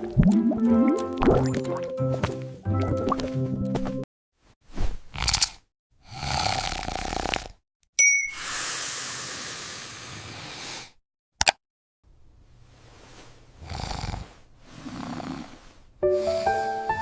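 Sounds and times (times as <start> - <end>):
heavy cartoon snores: 5.1 - 7.6, 8.4 - 11.0, 13.6 - 17.0
high alert chime: 8.0 - 8.4
long hiss of breath: 8.3 - 11.0, 13.7 - 17.0
click: 11.4 - 11.6.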